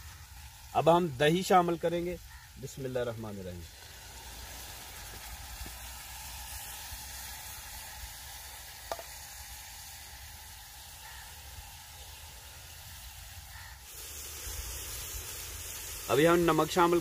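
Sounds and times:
food sizzling in a metal pot: 0:00.0 - 0:17.0.

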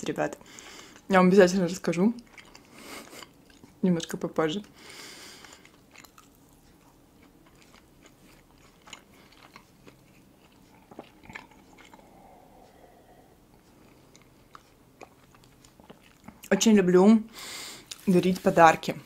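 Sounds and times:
chewing and finger-licking: 0:02.2 - 0:04.8, 0:05.4 - 0:16.6
sipping and swallowing: 0:10.0 - 0:14.4.

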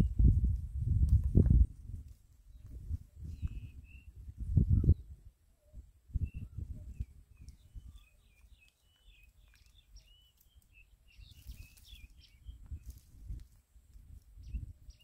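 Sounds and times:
small birds chirping: 0:02.4 - 0:13.4, 0:14.0 - 0:15.0.

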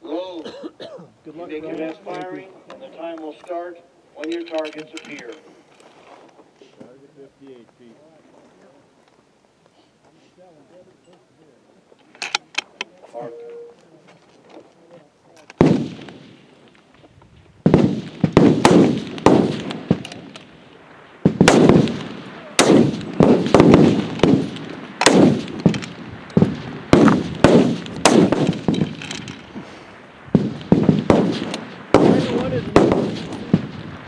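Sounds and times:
rifle shots with echo: 0:15.6 - 0:16.6, 0:17.6 - 0:20.6, 0:21.2 - 0:29.4, 0:30.3 - 0:34.0.

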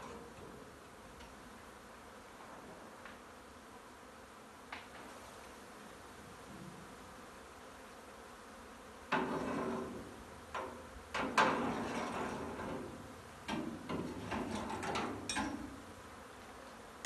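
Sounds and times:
honey bee swarm buzzing: 0:00.0 - 0:11.2, 0:15.2 - 0:17.0.

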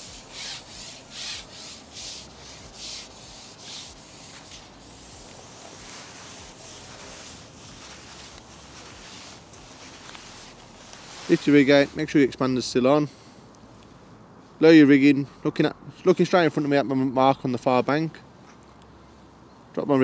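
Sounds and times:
pole rubbing through hands: 0:00.0 - 0:12.2
faint steady hiss: 0:00.0 - 0:20.0.

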